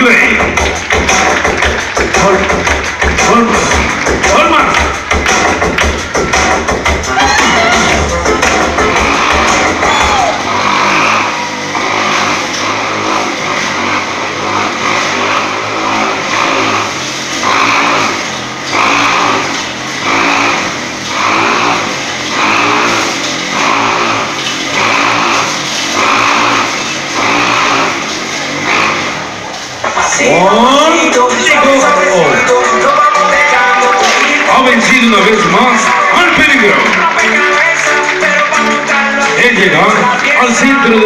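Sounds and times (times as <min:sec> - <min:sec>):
motorcycle engine revving: 0:00.0 - 0:41.0.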